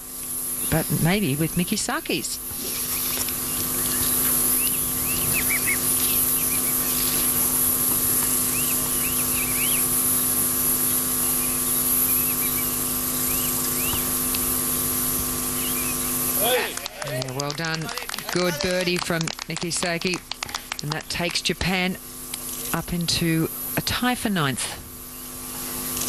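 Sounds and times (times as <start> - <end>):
steady hum and hiss: 0.0 - 26.0
small birds chirping: 2.7 - 10.3, 10.9 - 14.5, 15.5 - 16.4.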